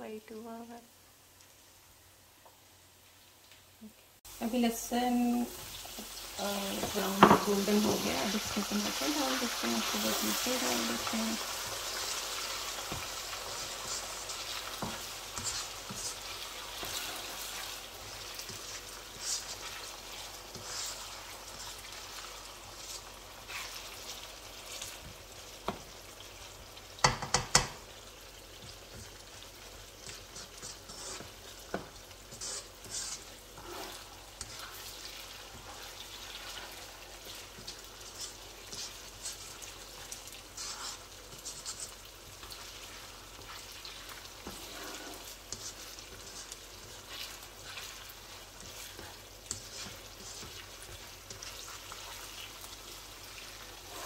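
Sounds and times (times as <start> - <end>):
oil sizzling in a pan: 0.0 - 54.0
spoon stirring and scraping: 5.6 - 26.0, 28.6 - 54.0
spoon knocking against pan: 6.8 - 8.0, 27.0 - 27.8.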